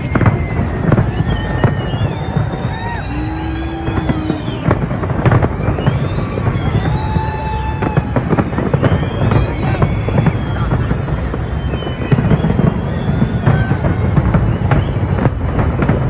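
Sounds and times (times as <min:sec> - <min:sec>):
fireworks bangs and crackles: 0:00.0 - 0:16.0
low rumble of bursting shells: 0:00.0 - 0:16.0.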